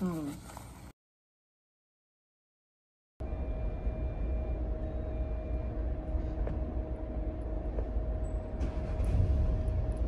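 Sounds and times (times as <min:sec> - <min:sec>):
car engine rumble inside cabin: 0:03.2 - 0:10.0.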